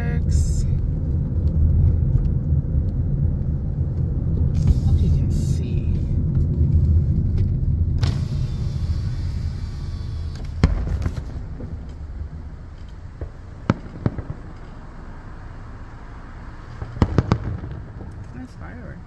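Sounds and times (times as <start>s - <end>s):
low rumble: 0.0s - 19.0s
firework bang: 7.8s - 12.6s, 13.2s - 14.9s, 16.8s - 18.2s
firework pops: 10.3s - 12.1s, 12.8s - 14.8s, 16.8s - 18.4s.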